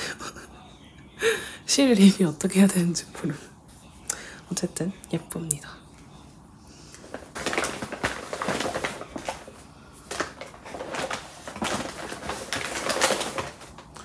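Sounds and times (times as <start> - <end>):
packaging rustling and crinkling: 7.0 - 14.0.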